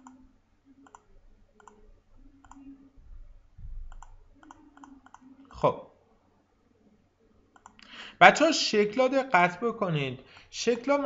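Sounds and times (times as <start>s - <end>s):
computer mouse clicking: 0.8s - 1.8s, 2.4s - 2.7s, 3.8s - 5.3s, 7.5s - 7.9s.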